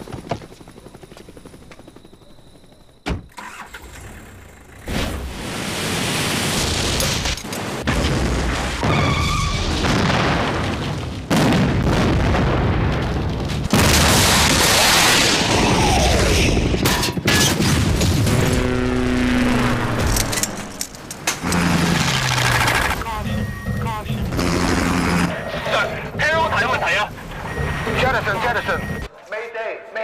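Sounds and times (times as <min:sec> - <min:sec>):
explosion booms and blasts: 0:05.0 - 0:18.6.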